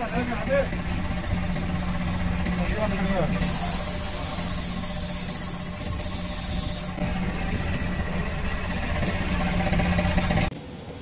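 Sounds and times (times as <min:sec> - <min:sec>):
low machine hum: 0:00.0 - 0:11.0
spray gun hissing: 0:03.4 - 0:07.0.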